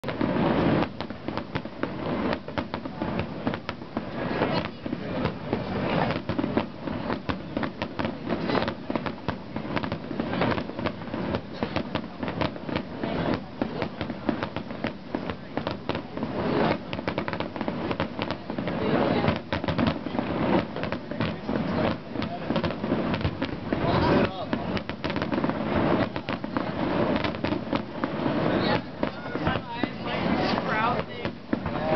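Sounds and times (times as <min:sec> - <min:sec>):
fireworks bursting and crackling: 0:00.0 - 0:31.9.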